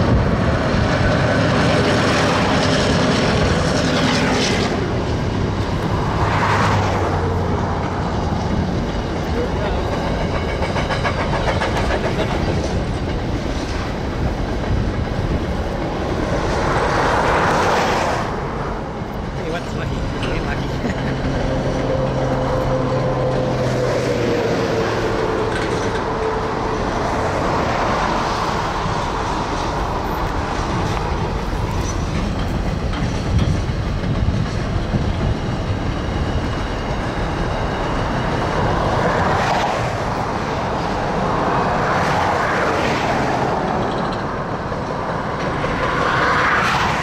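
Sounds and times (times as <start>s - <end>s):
steel wheels rolling on rail: 0.0s - 47.0s
wheels clicking over rail joints: 7.2s - 17.8s, 25.0s - 41.4s, 43.0s - 47.0s.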